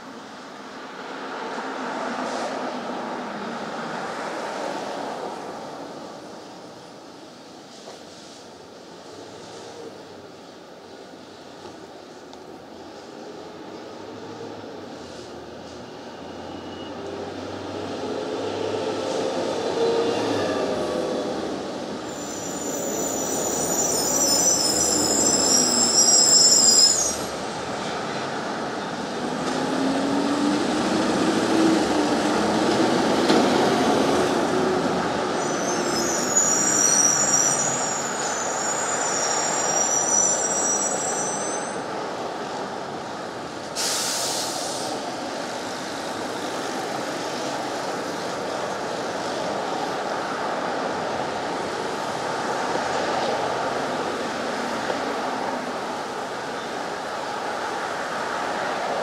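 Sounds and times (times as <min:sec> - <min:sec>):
street traffic passing: 0:00.1 - 0:23.8, 0:26.6 - 0:39.8
high-pitched squeal: 0:22.1 - 0:27.3, 0:35.4 - 0:41.9
short hiss: 0:43.8 - 0:45.0.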